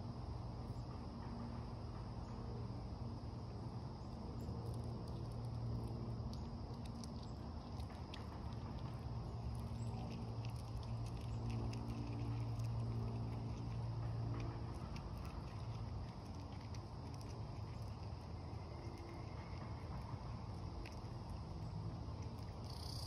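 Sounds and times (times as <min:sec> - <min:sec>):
steady low hum: 0:00.0 - 0:23.0
seeds and shells clicking and rustling: 0:04.7 - 0:23.0.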